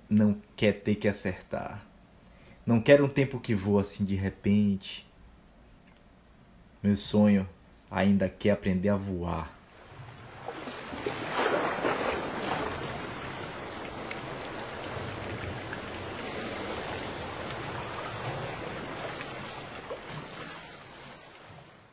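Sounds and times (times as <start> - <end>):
sea waves washing: 9.6 - 21.9.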